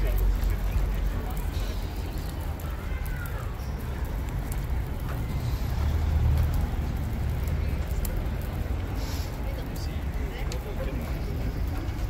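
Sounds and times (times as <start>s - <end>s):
city street rumble: 0.0s - 12.0s
faint hiss: 8.8s - 9.6s.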